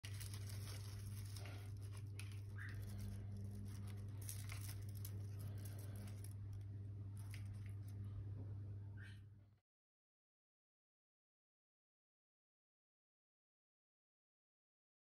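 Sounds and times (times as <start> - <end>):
leafy rustling: 0.0 - 6.6
steady low hum: 0.0 - 9.6.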